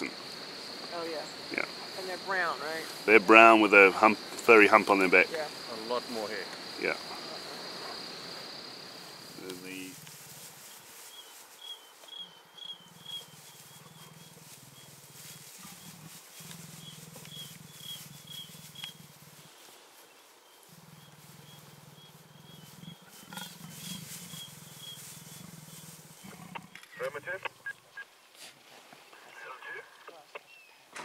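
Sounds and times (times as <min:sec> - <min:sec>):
cricket chirping: 0:00.0 - 0:28.3
leopard growling: 0:12.7 - 0:19.5, 0:20.7 - 0:27.8.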